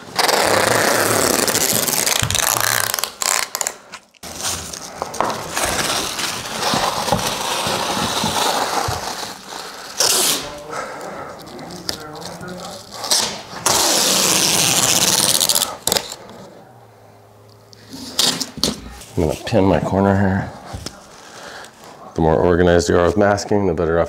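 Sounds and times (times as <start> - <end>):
plastic sheeting crinkling: 0.0 - 16.0.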